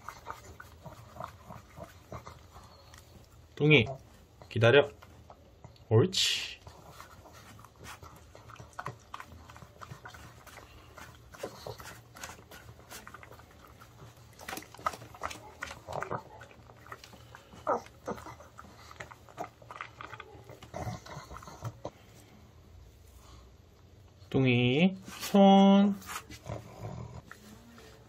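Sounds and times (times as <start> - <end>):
dog licking and chewing: 0.0 - 5.9, 6.6 - 22.1.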